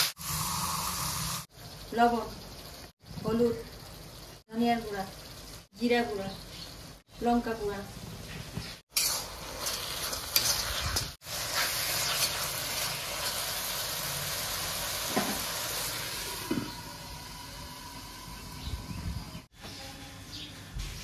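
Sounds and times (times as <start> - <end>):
masala sizzling in hot oil: 0.0 - 19.5.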